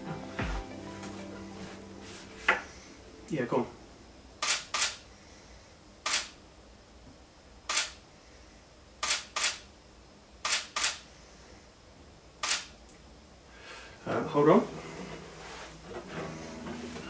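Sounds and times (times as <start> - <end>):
camera shutter clicks: 4.4 - 5.0, 6.1 - 6.4, 7.7 - 8.0, 9.0 - 9.6, 10.4 - 11.0, 12.4 - 12.7.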